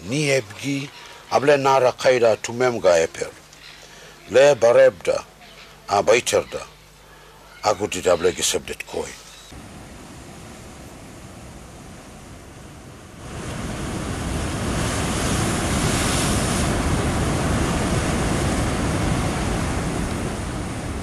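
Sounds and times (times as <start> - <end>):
waves breaking over rocks: 9.6 - 21.0.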